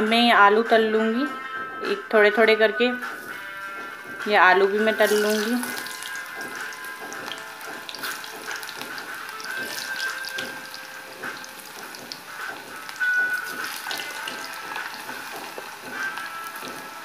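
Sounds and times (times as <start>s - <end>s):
potato wedges frying in oil: 4.3s - 17.0s.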